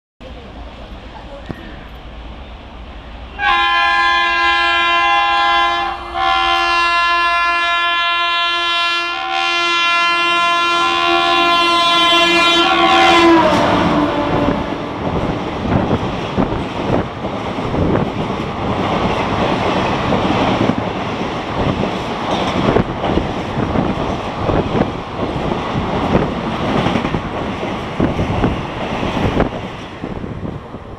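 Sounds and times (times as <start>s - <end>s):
locomotive horn blasts: 3.4s - 15.0s
train wheels clattering on rails: 13.5s - 30.7s.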